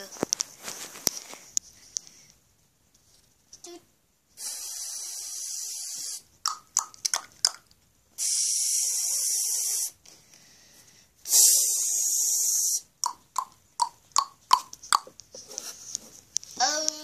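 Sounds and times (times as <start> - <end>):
mouth hissing shh sounds: 4.3 - 6.4, 8.2 - 10.0, 11.2 - 13.0
mouth clicking pops: 5.4 - 10.0, 13.0 - 15.3.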